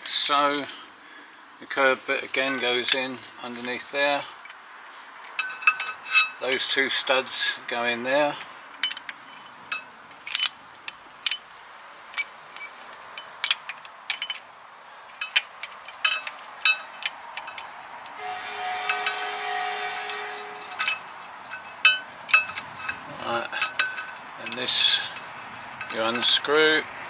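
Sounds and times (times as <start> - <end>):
metal tool parts clicking: 8.7 - 11.5, 12.1 - 18.2, 20.5 - 26.6
steady humming tone: 18.2 - 21.7.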